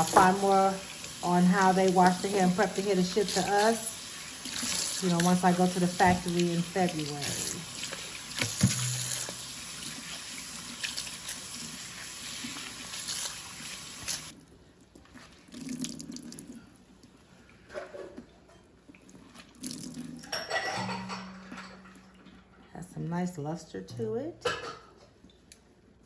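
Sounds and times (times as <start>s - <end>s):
tap water running into sink: 0.0s - 14.3s
water splashes and drips: 0.0s - 16.6s.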